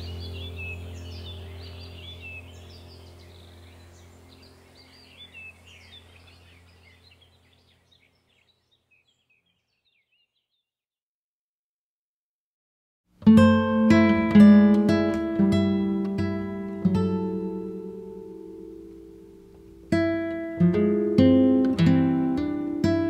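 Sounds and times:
low steady hum: 0:00.0 - 0:09.4, 0:13.2 - 0:23.0
bird-like chirps: 0:00.0 - 0:10.7.

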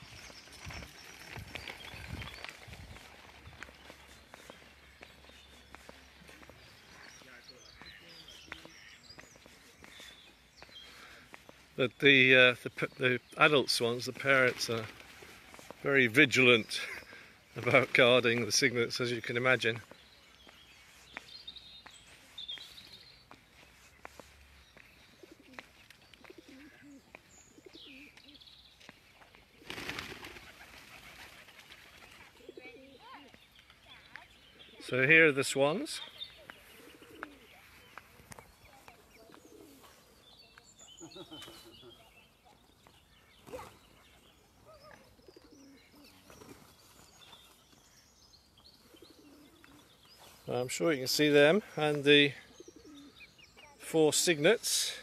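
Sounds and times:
small birds chirping: 0:00.0 - 0:55.0
low wavering cooing calls: 0:25.2 - 0:28.4, 0:48.9 - 0:49.9, 0:52.5 - 0:53.3.

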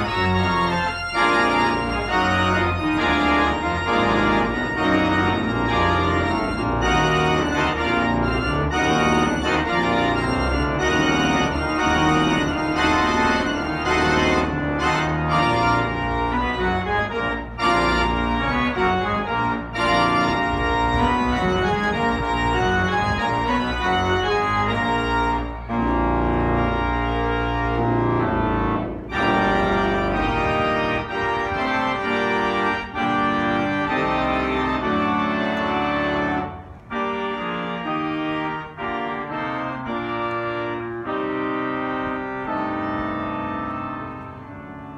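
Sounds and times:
pipe organ playing sustained chords: 0:00.0 - 0:44.9.

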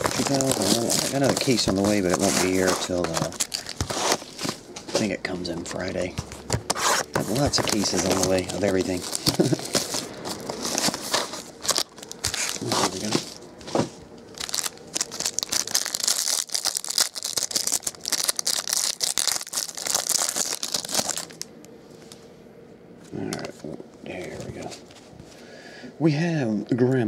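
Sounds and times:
plastic wrapper tearing and crinkling: 0:00.0 - 0:04.6, 0:07.2 - 0:13.4, 0:14.2 - 0:21.5.

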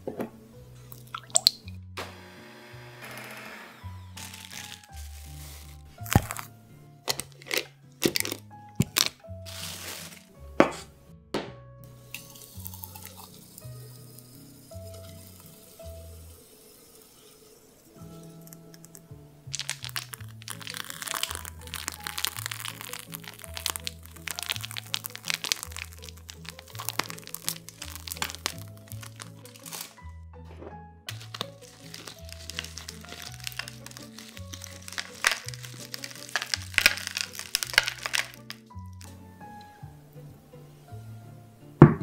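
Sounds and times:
kitchen knocks and scrapes: 0:00.0 - 0:00.4, 0:10.6 - 0:11.6, 0:30.5 - 0:30.8
soft background music: 0:00.0 - 0:42.0
piping bag clicks and crinkles: 0:04.2 - 0:10.3, 0:12.2 - 0:13.4, 0:18.2 - 0:30.0, 0:31.1 - 0:39.2
milkshake pouring into glass: 0:12.0 - 0:29.9, 0:31.1 - 0:39.1.

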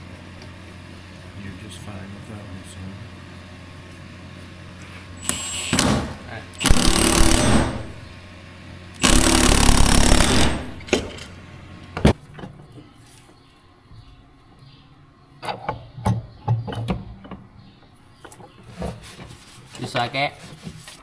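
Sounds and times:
impact driver whirring: 0:05.2 - 0:08.1, 0:08.9 - 0:11.2.

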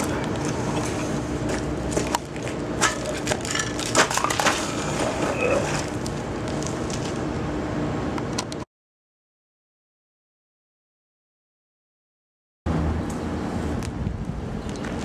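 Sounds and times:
crunching on gravel: 0:00.0 - 0:07.3
outdoor background noise: 0:00.0 - 0:08.7, 0:12.7 - 0:15.0.

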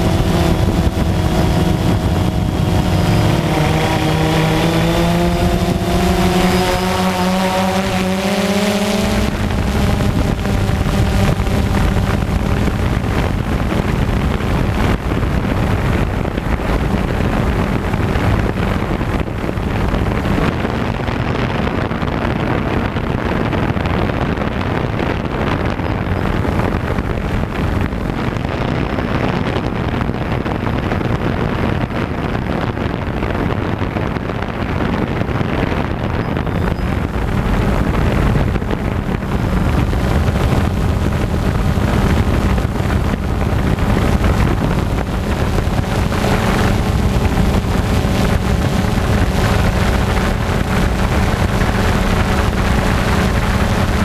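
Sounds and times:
faint motor hum: 0:00.0 - 0:21.6
drone propellers whirring: 0:00.0 - 0:23.8, 0:32.9 - 0:54.0
wind on microphone: 0:00.0 - 0:54.0.

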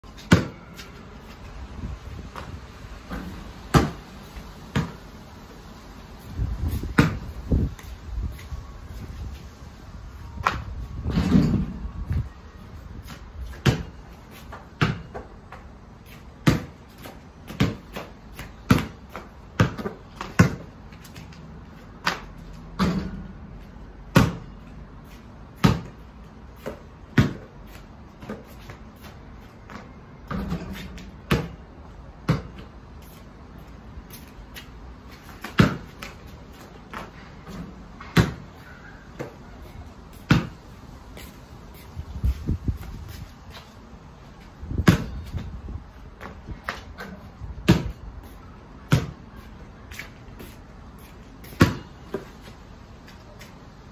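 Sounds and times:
basketball bouncing on concrete: 0:00.1 - 0:00.9, 0:03.1 - 0:04.1, 0:04.7 - 0:05.1, 0:06.7 - 0:07.8, 0:13.0 - 0:15.7, 0:16.4 - 0:21.3, 0:22.0 - 0:23.4, 0:24.0 - 0:24.6, 0:25.6 - 0:32.7, 0:35.2 - 0:38.6, 0:40.1 - 0:40.6, 0:44.7 - 0:45.5, 0:46.1 - 0:48.0, 0:48.8 - 0:49.3, 0:51.4 - 0:52.4
ball hitting rim and backboard: 0:00.2 - 0:00.6, 0:03.1 - 0:04.0, 0:04.7 - 0:05.0, 0:13.6 - 0:13.9, 0:14.8 - 0:15.2, 0:16.4 - 0:16.8, 0:17.5 - 0:18.1, 0:19.6 - 0:20.7, 0:22.8 - 0:23.3, 0:24.1 - 0:24.4, 0:25.6 - 0:25.9, 0:27.2 - 0:27.5, 0:32.3 - 0:32.6, 0:35.4 - 0:36.0, 0:36.9 - 0:38.4, 0:40.3 - 0:40.6, 0:47.6 - 0:48.0, 0:48.9 - 0:49.2, 0:51.5 - 0:51.9.

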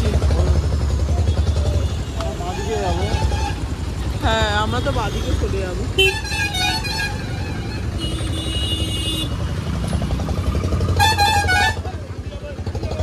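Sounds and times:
motorcycle engine and road rumble: 0:00.0 - 0:13.0
vehicle horns honking: 0:04.5 - 0:09.6, 0:10.8 - 0:12.2.

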